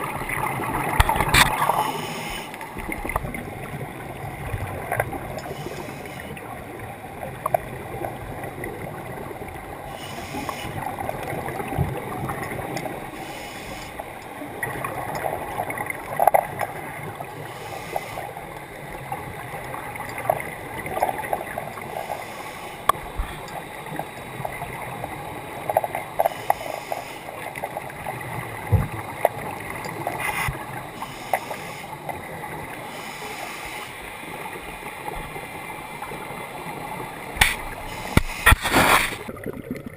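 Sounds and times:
divers breathing through regulators: 0:01.7 - 0:02.6, 0:05.4 - 0:06.4, 0:09.9 - 0:10.8, 0:13.1 - 0:14.2, 0:17.4 - 0:18.4, 0:21.8 - 0:23.5, 0:26.2 - 0:27.4, 0:30.2 - 0:32.0, 0:32.9 - 0:34.1, 0:37.5 - 0:39.3
bubbles gurgling: 0:38.4 - 0:39.9.

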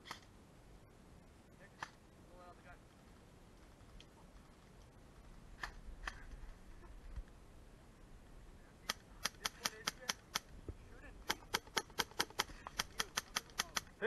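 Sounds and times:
faint clicks: 0:08.8 - 0:10.5, 0:11.3 - 0:14.0
airsoft gun firing: 0:11.2 - 0:13.9.

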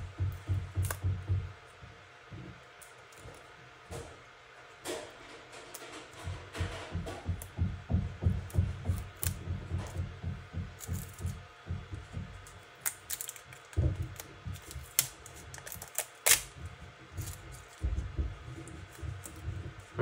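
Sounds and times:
soft low thumps of handling: 0:06.2 - 0:12.6, 0:16.5 - 0:20.0.

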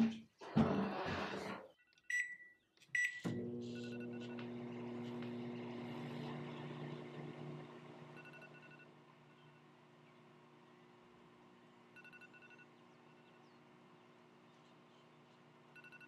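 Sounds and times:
short beeps: 0:02.0 - 0:04.3
microwave oven humming: 0:03.0 - 0:16.0.

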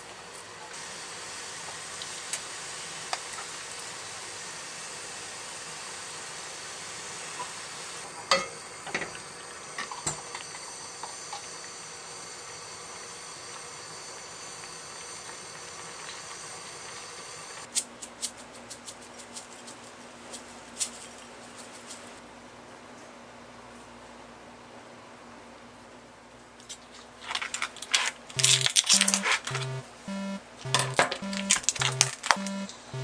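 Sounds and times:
sauce simmering hiss: 0:00.2 - 0:17.7.

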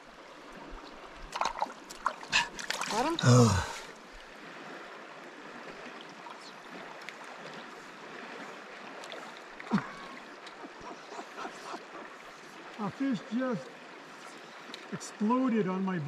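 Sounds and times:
person exclaiming: 0:02.9 - 0:03.8, 0:09.7 - 0:10.2.

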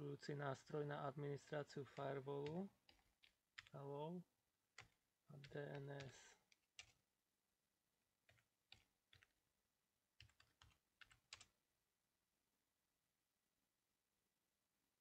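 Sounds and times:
faint keyboard typing: 0:01.7 - 0:03.9, 0:04.7 - 0:07.1, 0:08.2 - 0:09.5, 0:10.1 - 0:11.6.

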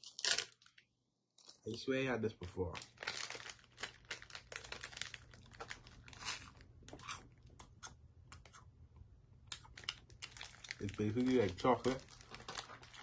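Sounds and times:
wrapper crinkling: 0:02.7 - 0:06.6, 0:09.6 - 0:13.0
crunching and chewing snack: 0:02.9 - 0:08.7.

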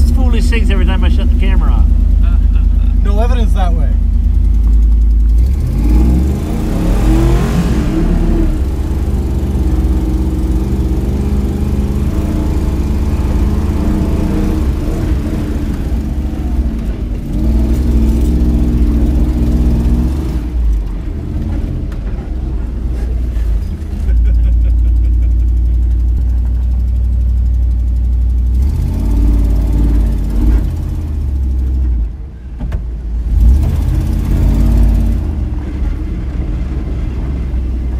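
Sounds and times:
car engine revving from inside: 0:05.4 - 0:20.6.

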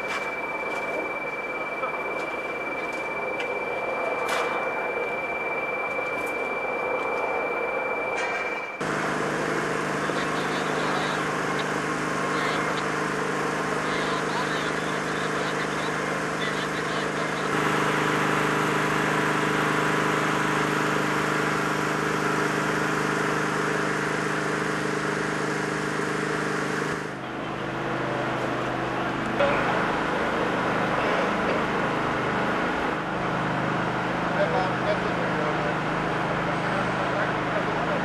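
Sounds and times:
machine engine humming: 0:00.0 - 0:38.0
outdoor noise: 0:00.0 - 0:38.0
faint voices: 0:09.6 - 0:17.6.

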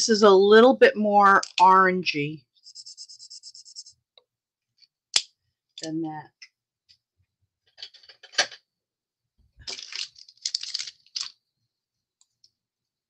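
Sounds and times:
plastic markers clicking and clattering: 0:01.4 - 0:01.7, 0:09.7 - 0:11.4.

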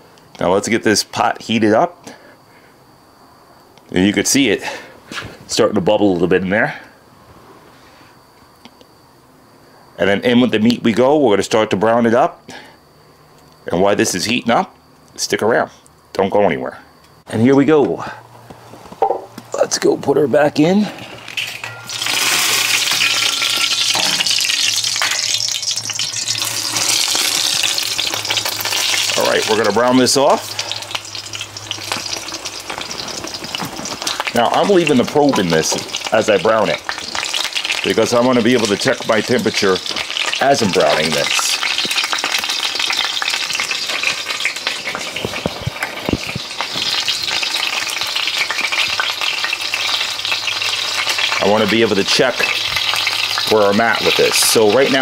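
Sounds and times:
meat sizzling in hot fat: 0:20.8 - 0:55.0.

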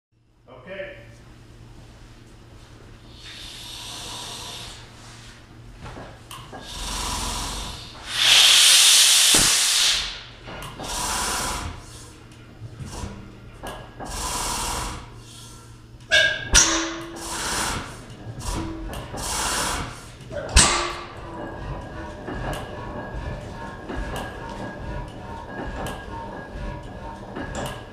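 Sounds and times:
engine hissing puffs: 0:03.1 - 0:05.4, 0:06.6 - 0:12.2, 0:14.1 - 0:15.8
low steady hum: 0:15.0 - 0:27.9
sharp metallic clank: 0:16.1 - 0:17.2, 0:20.5 - 0:24.8.

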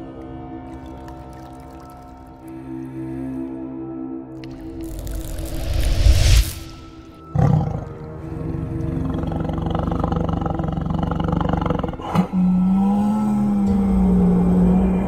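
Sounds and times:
background music: 0:00.0 - 0:15.0
tiger growling and roaring: 0:07.3 - 0:15.0.

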